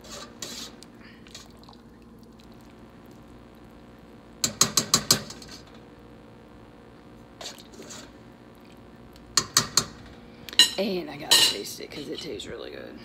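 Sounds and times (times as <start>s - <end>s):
metal utensil clinking on pot: 10.6s - 11.7s.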